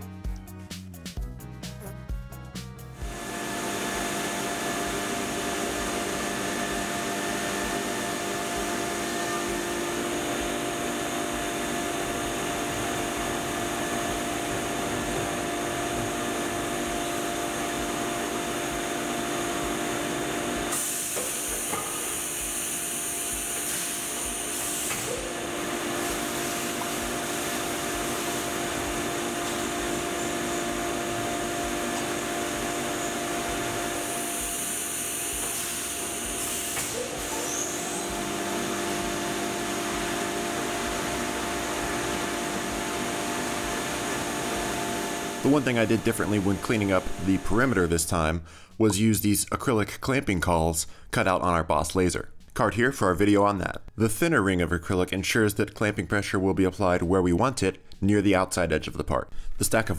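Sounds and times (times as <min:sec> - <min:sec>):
drilling hiss: 0:03.0 - 0:47.7
milling machine cutting whine: 0:03.0 - 0:47.8
coolant spray: 0:20.2 - 0:47.4.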